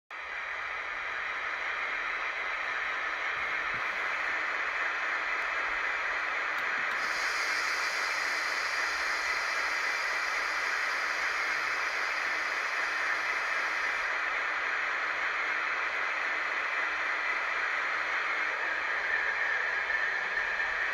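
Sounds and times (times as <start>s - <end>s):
steady hiss from small speakers: 0.2s - 20.8s
brighter sharper hiss: 6.8s - 14.1s.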